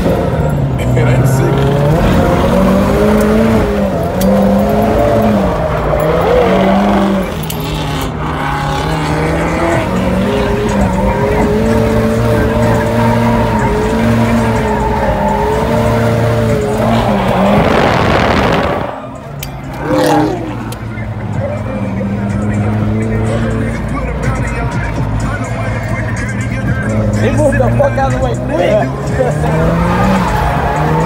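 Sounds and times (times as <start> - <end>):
car engine revving high: 0.0 - 31.0
tyres squealing: 0.8 - 21.1.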